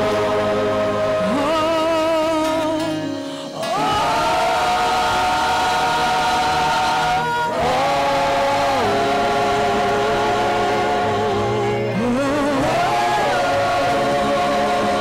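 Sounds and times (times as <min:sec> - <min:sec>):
backing singers holding notes: 0:00.0 - 0:15.0
band playing: 0:00.0 - 0:15.0
woman singing gospel: 0:00.8 - 0:03.0, 0:09.6 - 0:15.0.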